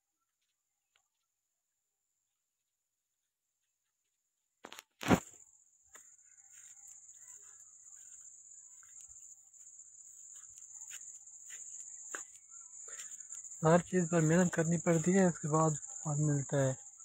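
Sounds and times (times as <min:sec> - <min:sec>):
crickets chirring: 0:04.6 - 0:17.0.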